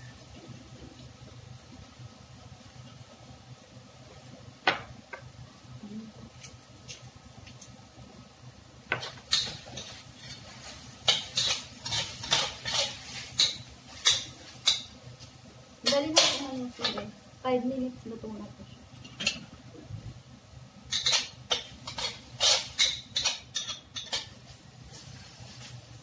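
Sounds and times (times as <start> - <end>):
metal spatula scraping a wok: 9.0 - 14.9, 20.9 - 25.9.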